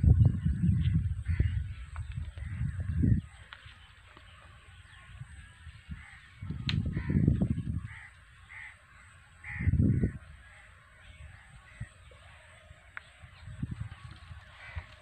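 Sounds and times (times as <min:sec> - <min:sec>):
low rumble on microphone: 0:00.0 - 0:03.9, 0:04.7 - 0:08.0, 0:09.4 - 0:15.0
crow cawing: 0:01.2 - 0:01.8, 0:04.9 - 0:13.1, 0:14.4 - 0:15.0.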